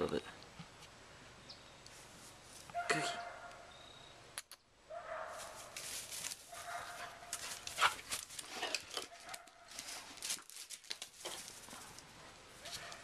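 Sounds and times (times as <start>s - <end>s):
rustling: 5.3s - 13.0s.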